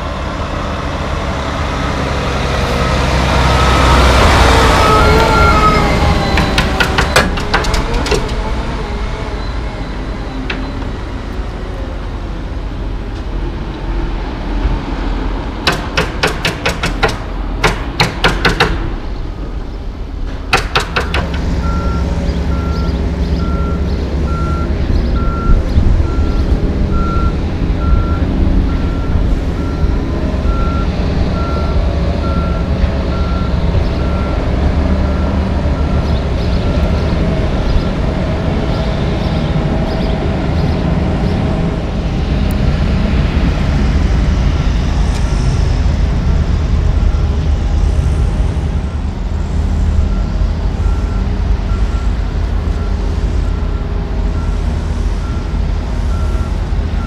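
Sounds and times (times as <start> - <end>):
diesel truck engine running: 0.0 - 57.0
backup alarm beeping: 4.8 - 7.4, 21.6 - 34.4
sharp knocks and clanks: 6.3 - 8.4, 15.6 - 19.0, 20.3 - 21.8.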